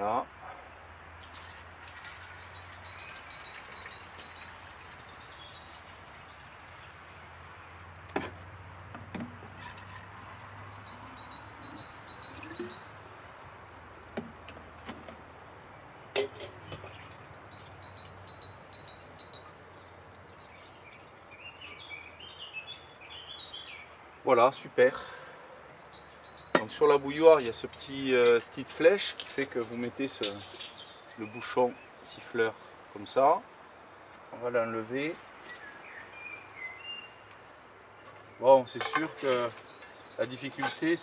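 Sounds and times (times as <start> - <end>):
bird trilling: 10.7 - 13.0.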